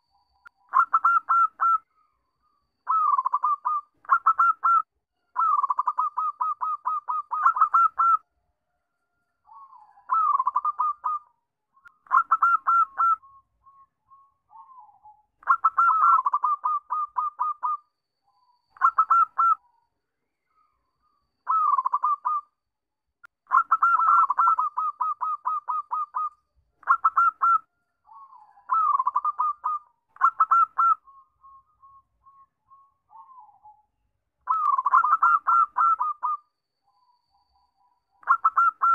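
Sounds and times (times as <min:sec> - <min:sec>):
dove cooing: 0:00.7 - 0:01.8, 0:02.9 - 0:04.8, 0:05.4 - 0:08.2, 0:09.5 - 0:11.3, 0:12.1 - 0:13.8, 0:14.5 - 0:17.8, 0:18.8 - 0:19.6, 0:21.5 - 0:22.5, 0:23.5 - 0:32.4, 0:34.5 - 0:36.4, 0:38.2 - 0:38.9.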